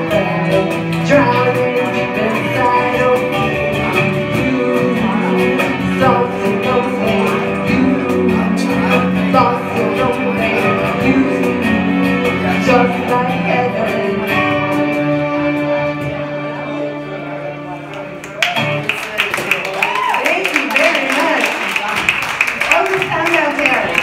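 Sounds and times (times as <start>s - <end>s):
woman singing: 0.0s - 15.3s
strummed acoustic guitar: 0.0s - 17.6s
electric keyboard: 0.0s - 18.9s.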